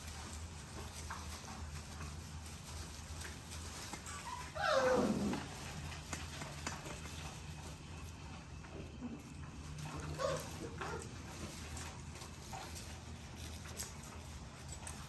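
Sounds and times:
paws rustling in wood shavings: 0.0s - 15.0s
puppy yelping: 4.1s - 5.8s, 9.8s - 11.2s
puppy squealing: 4.2s - 5.5s, 10.1s - 11.0s.

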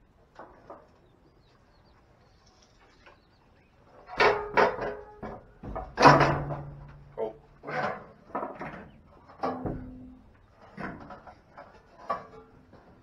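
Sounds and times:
loud knocks and scrapes: 4.1s - 12.4s.

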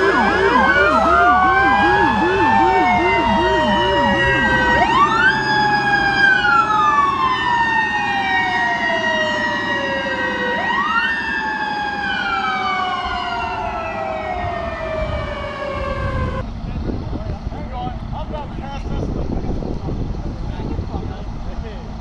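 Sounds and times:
emergency sirens wailing: 0.0s - 16.4s.

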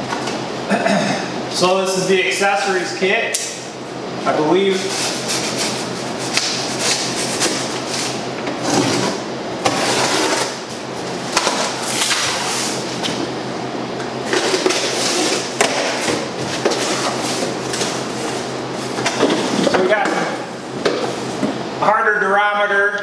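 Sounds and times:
cardboard rustling and scraping: 4.6s - 13.3s, 14.2s - 19.7s.

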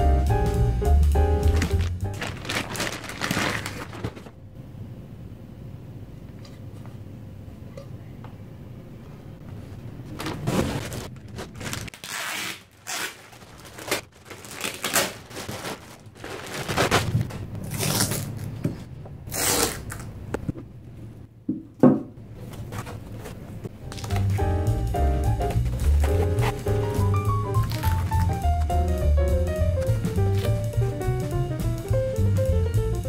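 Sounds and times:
plastic bag rustling: 1.4s - 4.4s, 9.7s - 20.1s, 25.4s - 28.6s.

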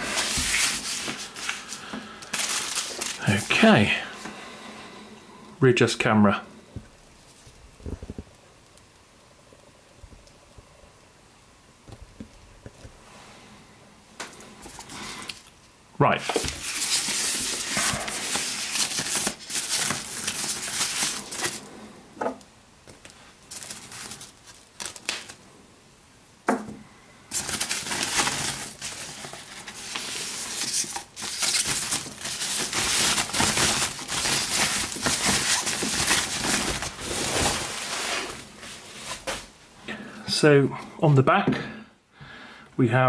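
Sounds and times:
plastic wrap crinkling: 0.0s - 4.2s, 16.2s - 21.8s, 22.8s - 25.4s, 27.3s - 39.6s.

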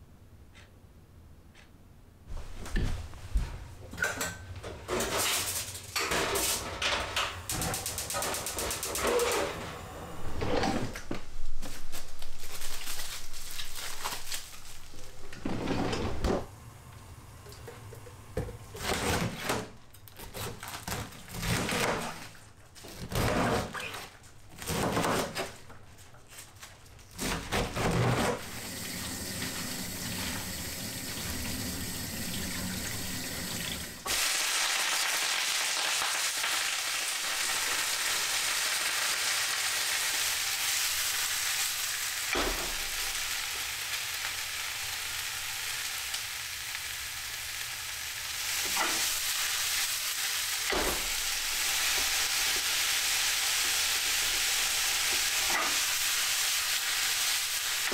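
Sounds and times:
kitchen clatter: 3.9s - 9.5s, 48.6s - 49.4s
cabbage sizzling in frying pan: 34.0s - 57.9s.

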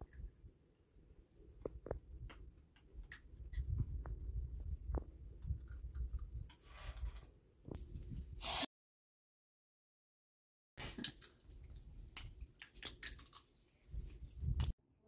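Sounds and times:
seeds cracking between teeth: 10.9s - 14.7s.

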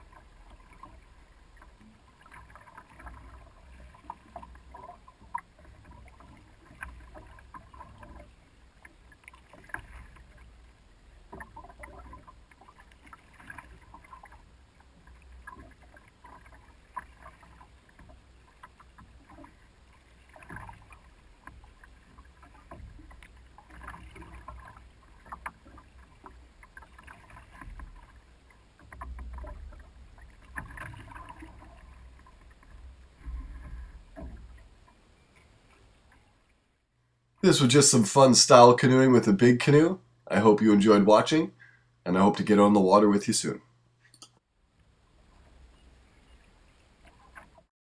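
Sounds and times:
canoe paddle splashing in water: 0.0s - 36.2s.

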